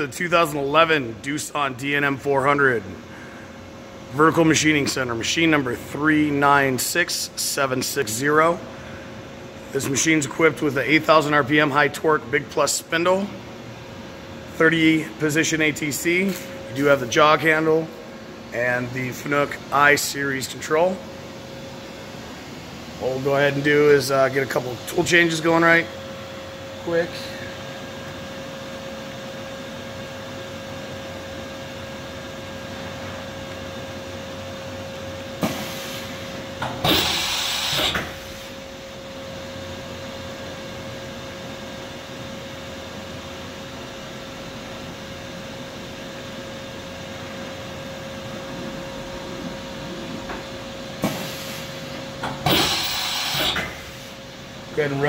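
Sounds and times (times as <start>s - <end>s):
machine hum: 0.0s - 55.0s
loud air hiss: 35.4s - 36.2s, 36.8s - 38.6s, 51.0s - 51.8s, 52.4s - 54.2s.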